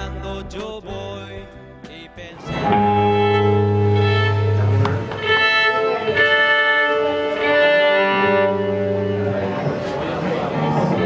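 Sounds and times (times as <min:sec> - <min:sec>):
electric guitar: 0:00.0 - 0:11.0
violin playing long held notes: 0:02.5 - 0:11.0.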